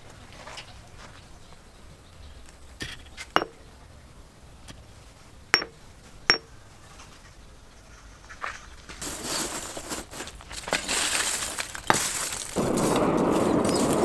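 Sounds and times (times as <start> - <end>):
steel axle clinking on anvil: 3.2 - 3.6, 5.5 - 6.5.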